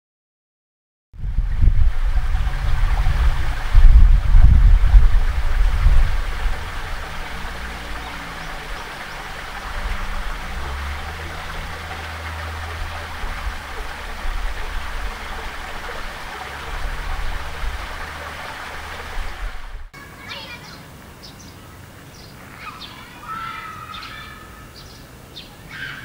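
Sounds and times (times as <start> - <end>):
low engine hum: 1.2 - 19.9.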